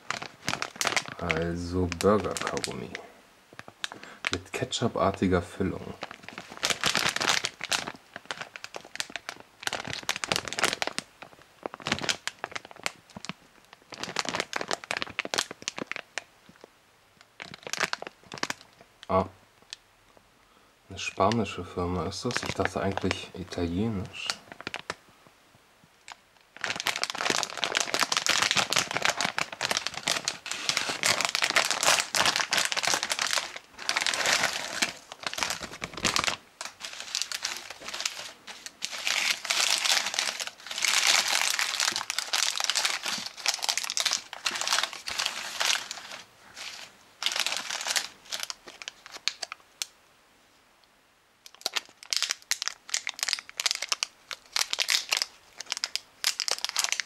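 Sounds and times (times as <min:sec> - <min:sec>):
plastic wrappers crinkling: 0:00.0 - 0:04.9, 0:05.7 - 0:16.7, 0:17.3 - 0:19.2, 0:21.0 - 0:25.0, 0:26.0 - 0:49.9, 0:51.4 - 0:57.0.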